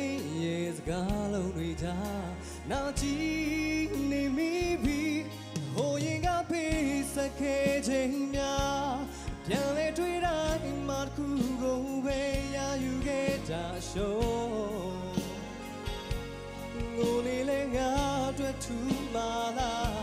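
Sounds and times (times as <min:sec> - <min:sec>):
man singing into microphone: 0:00.0 - 0:15.8, 0:16.8 - 0:20.0
backing band playing: 0:00.0 - 0:20.0.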